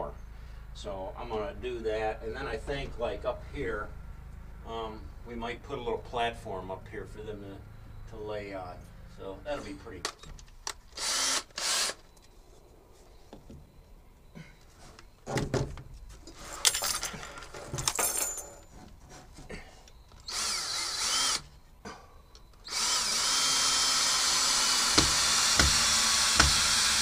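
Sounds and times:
cordless drill drilling into log: 11.0 - 12.0, 20.2 - 21.5, 22.6 - 27.0.

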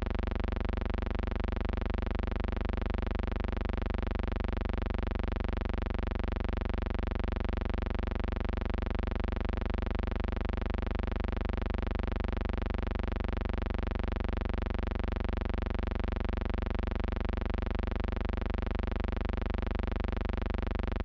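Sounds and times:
electrical hum-buzz: 5.6 - 21.0.

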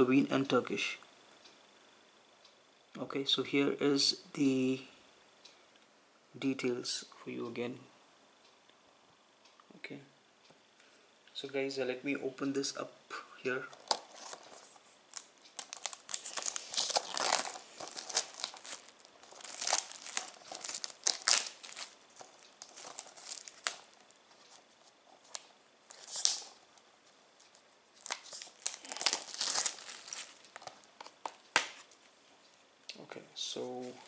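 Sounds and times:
plastic shrink wrap crinkling: 13.6 - 32.1.

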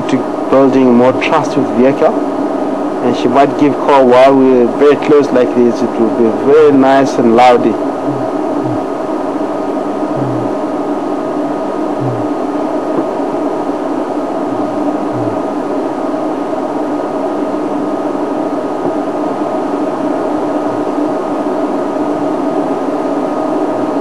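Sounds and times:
mechanical hum with hiss: 0.0 - 24.0
faint low thumps: 8.0 - 9.0, 9.9 - 10.8, 12.0 - 13.2, 14.4 - 15.8.

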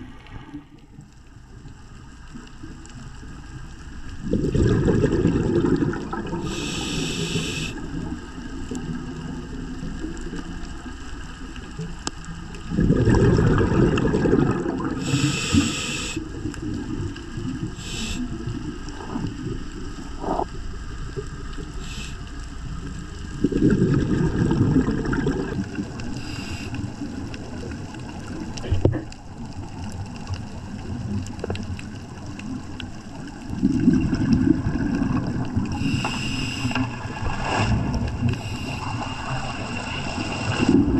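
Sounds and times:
exhaust bubbles rumbling: 0.0 - 40.9
regulator inhale hisses: 6.4 - 7.8, 15.0 - 16.4, 17.8 - 19.4, 21.7 - 22.4, 26.2 - 27.0, 35.7 - 37.0, 38.3 - 39.4.

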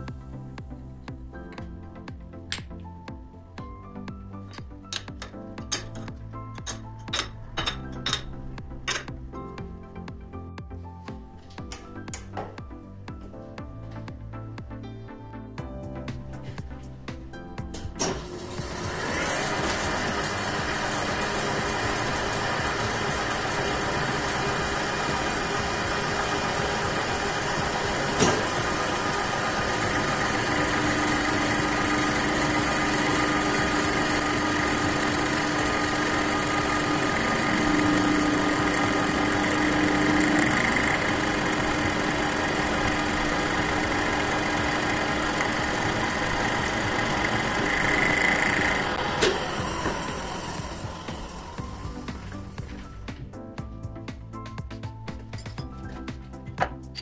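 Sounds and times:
metal lathe hum and rattle: 4.4 - 9.4, 17.7 - 53.2.

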